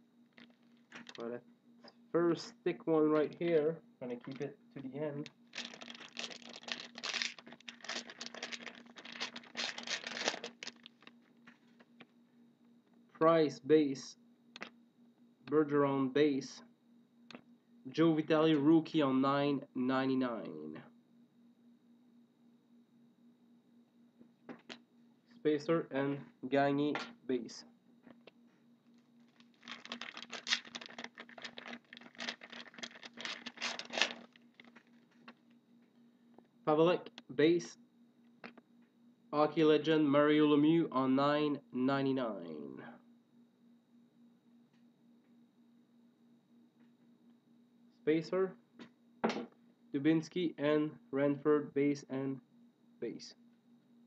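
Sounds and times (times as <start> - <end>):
wrapper crinkling and tearing: 0.4 - 1.2, 5.5 - 11.2, 29.2 - 35.1
cards shuffling and rustling: 5.6 - 11.8, 29.3 - 35.4.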